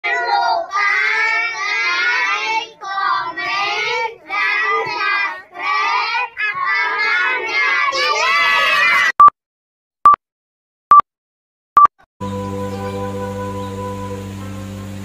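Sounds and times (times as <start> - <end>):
children singing in unison: 0.0 - 8.0.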